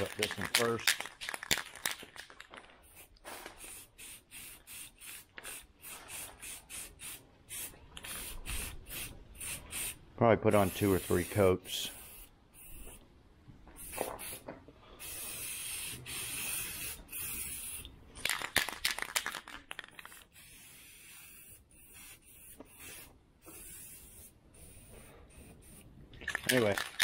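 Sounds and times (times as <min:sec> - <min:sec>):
aerosol can spraying: 0:02.8 - 0:10.0, 0:10.6 - 0:13.0, 0:13.8 - 0:17.9, 0:19.9 - 0:25.9.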